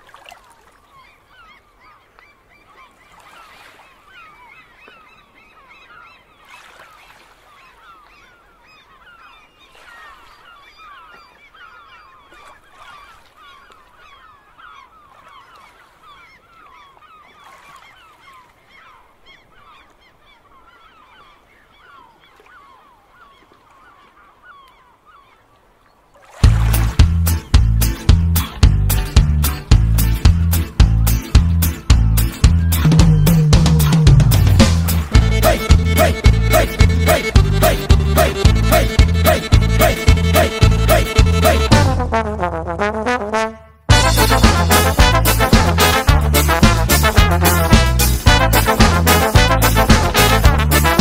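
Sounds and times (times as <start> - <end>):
flock of birds calling: 34.9 - 41.6.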